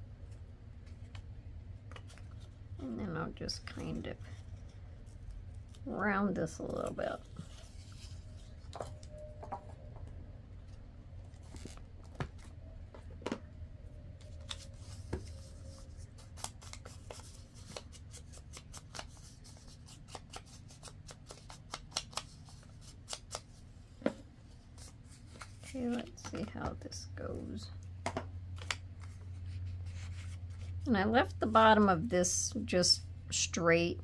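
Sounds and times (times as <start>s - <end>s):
paper rustling: 28.6s - 30.8s.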